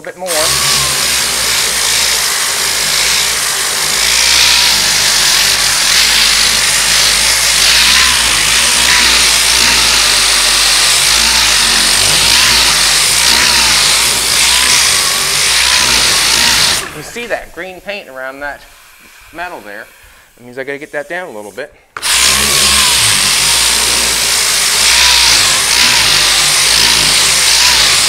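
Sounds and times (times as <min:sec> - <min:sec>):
power sander running: 0:00.0 - 0:17.3, 0:22.0 - 0:28.0.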